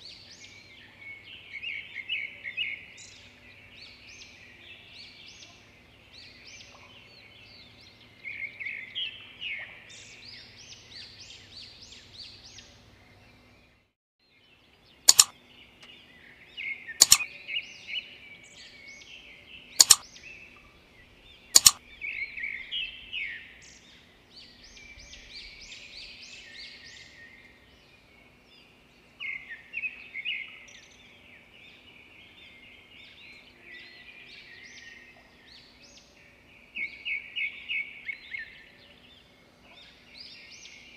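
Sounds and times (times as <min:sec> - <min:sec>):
birds chirping: 0:14.8 - 0:40.9
sharp clicks: 0:15.1 - 0:15.4, 0:17.0 - 0:17.3, 0:19.8 - 0:20.0, 0:21.6 - 0:21.8.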